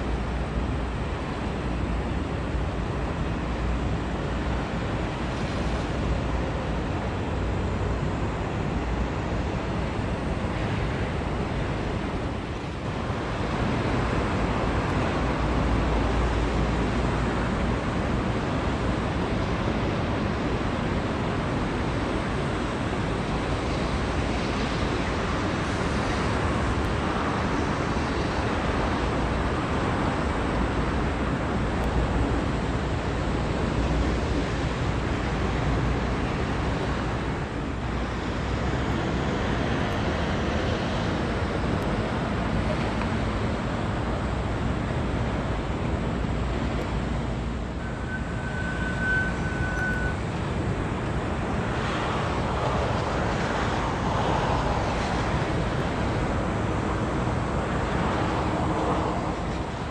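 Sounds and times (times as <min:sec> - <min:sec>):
water: 0:00.0 - 0:59.9
wind: 0:00.0 - 0:59.9
distant traffic: 0:08.6 - 0:59.9
high whistle-like tone: 0:47.8 - 0:50.2.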